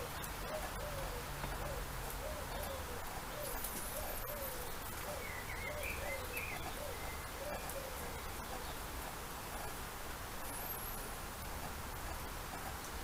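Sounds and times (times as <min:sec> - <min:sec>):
bird cooing: 0:00.0 - 0:08.9
bird chirping: 0:00.0 - 0:09.8.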